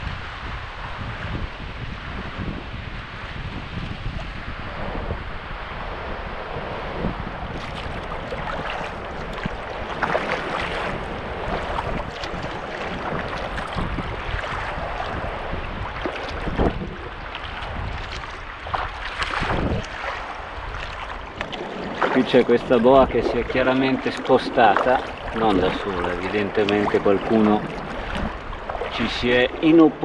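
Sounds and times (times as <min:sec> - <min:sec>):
wind on microphone: 0:00.0 - 0:30.0
water sloshing and splashing: 0:06.9 - 0:30.0.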